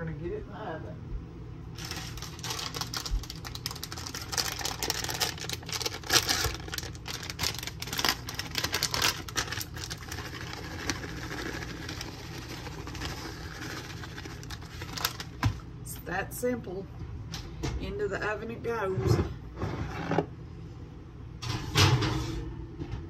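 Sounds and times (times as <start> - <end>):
plastic bag crinkling: 1.7 - 15.6
shredded cheese rustling: 1.8 - 15.4.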